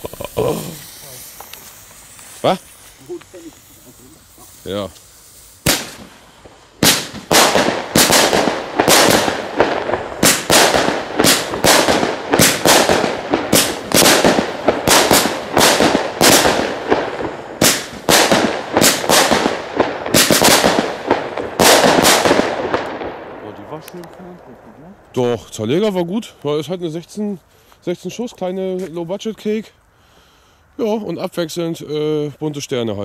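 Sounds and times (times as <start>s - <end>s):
firework shots bursting: 0.0s - 24.0s.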